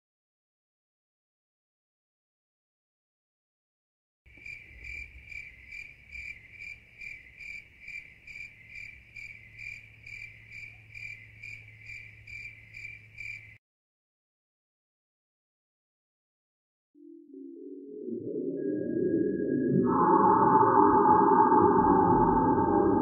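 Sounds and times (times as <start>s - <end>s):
cricket chirping: 4.3s - 13.6s.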